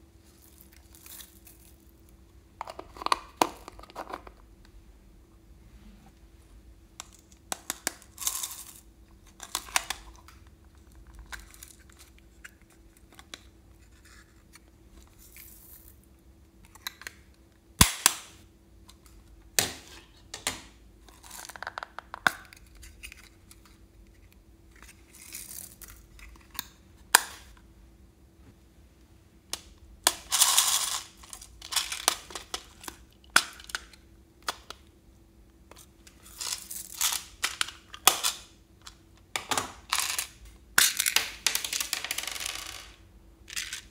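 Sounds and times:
rustling and rattling handling noise: 30.2s - 32.9s.

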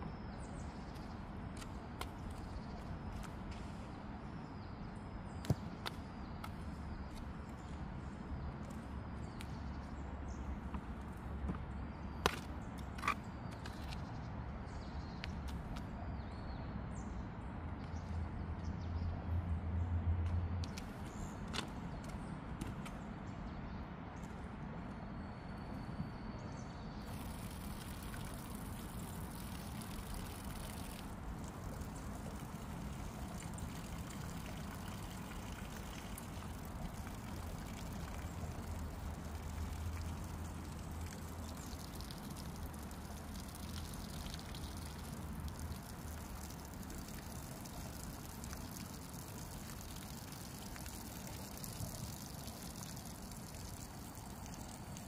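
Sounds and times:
hose water spraying on soil: 27.0s - 55.0s.

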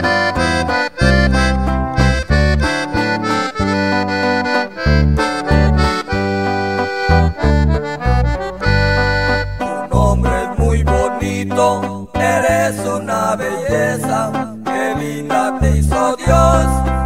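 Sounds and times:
button accordion melody: 0.0s - 13.0s
stepping bass line: 0.0s - 13.0s.

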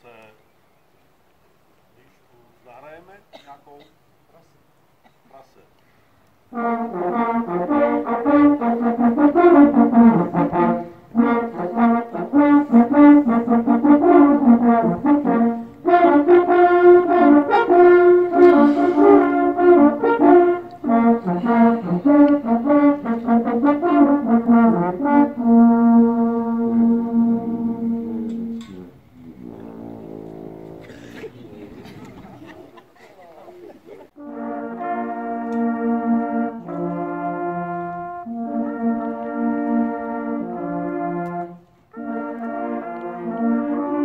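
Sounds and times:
hunting horns playing fanfare: 6.5s - 31.2s, 34.2s - 44.0s.

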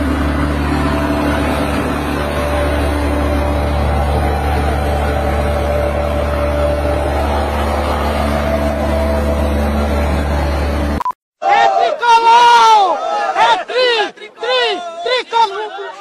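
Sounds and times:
fogging machine engine drone: 0.0s - 11.0s.

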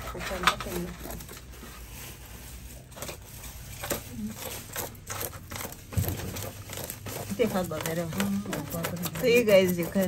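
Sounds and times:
knife scraping fish scales: 3.0s - 10.0s.

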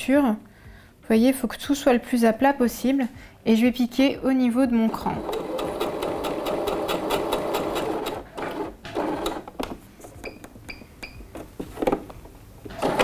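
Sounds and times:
sewing machine stitching: 4.9s - 9.5s, 12.7s - 13.0s.

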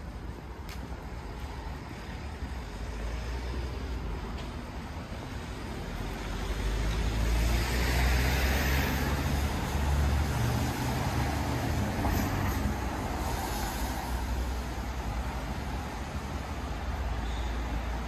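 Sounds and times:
low traffic rumble: 0.0s - 18.0s
vehicle passing on wet road: 6.0s - 14.6s.

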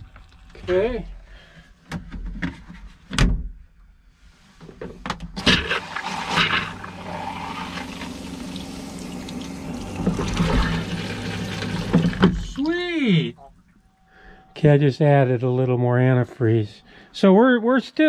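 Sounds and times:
water pump humming: 5.4s - 14.1s
liquid running: 5.5s - 12.8s.

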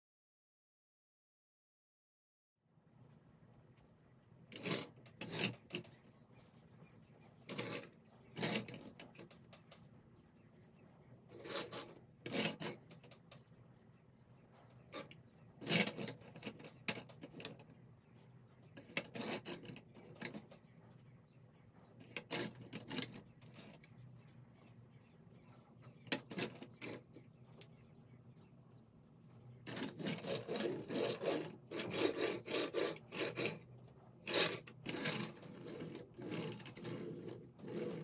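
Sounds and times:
plastic toy trucks scraping on wood: 4.5s - 6.0s, 7.4s - 9.6s, 11.3s - 13.3s, 14.6s - 17.7s, 18.7s - 20.6s, 21.8s - 23.9s, 25.9s - 27.3s, 29.5s - 38.0s.

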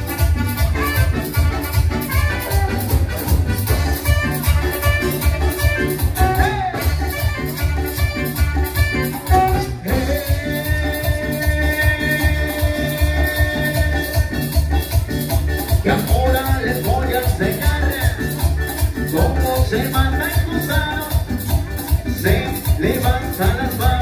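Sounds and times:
latin dance music with saxophone: 0.0s - 24.0s.

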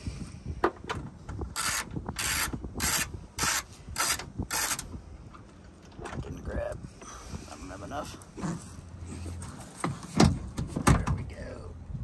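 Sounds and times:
ratchet wrench rasping: 1.6s - 4.9s.

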